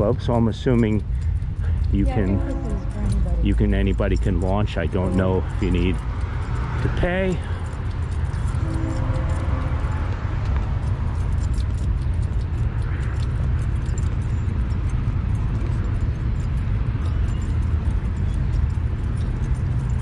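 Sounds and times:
light rapid clicking and jingling: 0.0s - 20.0s.

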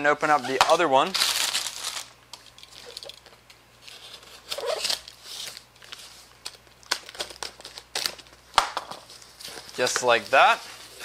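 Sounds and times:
packing tape peeling off cardboard: 3.8s - 8.4s.

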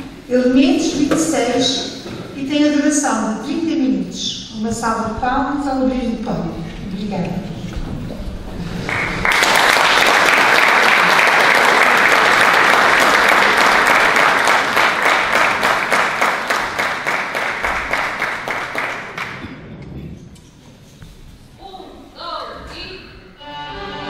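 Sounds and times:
audience applauding: 8.7s - 19.5s.

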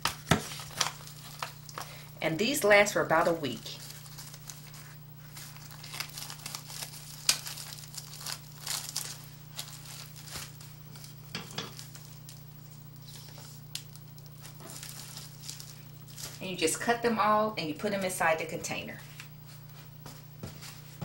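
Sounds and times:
steady low hum: 0.0s - 21.0s
plastic bag crinkling: 0.2s - 16.9s.

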